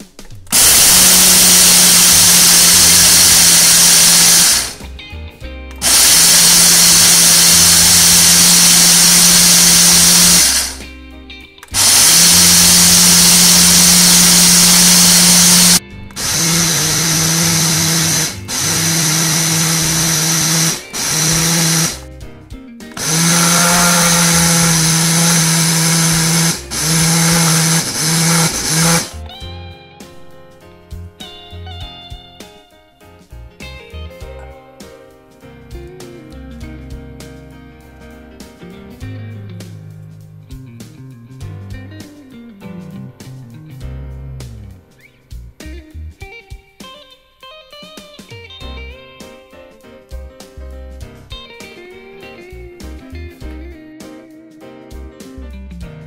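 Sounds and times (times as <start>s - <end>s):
blender grinding spices: 0.5s - 4.8s, 5.8s - 10.8s, 11.7s - 22.1s, 23.0s - 29.2s.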